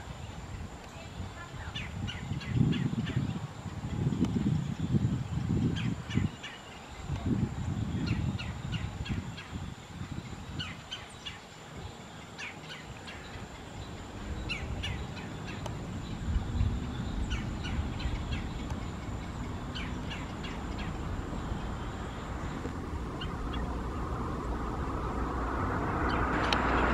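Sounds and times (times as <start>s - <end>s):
songbirds chirping: 0.0s - 26.9s
rush of noise: 12.6s - 26.9s
low rumble: 13.8s - 26.9s.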